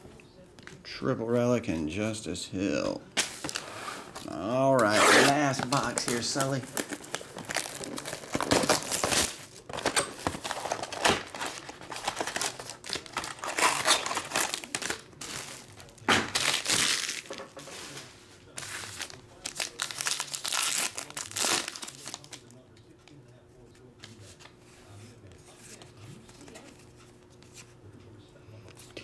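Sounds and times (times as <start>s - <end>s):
plastic wrapping crinkling and tearing: 4.2s - 22.6s.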